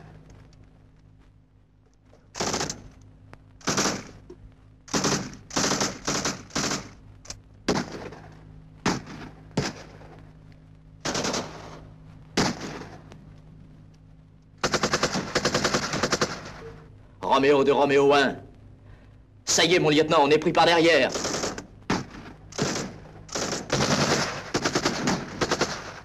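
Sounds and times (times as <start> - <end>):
machine-gun bursts: 2.4 - 2.9, 3.6 - 4.2, 4.9 - 7.0, 7.7 - 8.3, 11.0 - 11.8, 14.6 - 16.7, 21.0 - 26.0.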